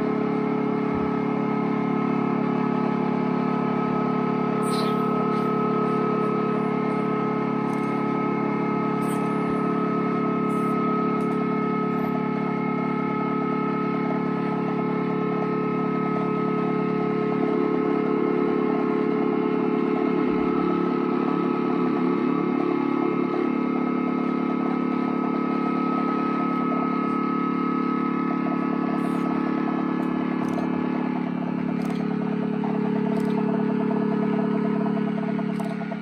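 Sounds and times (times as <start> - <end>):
wavering fluttering tone: 4.4 - 14.6, 22.0 - 36.0.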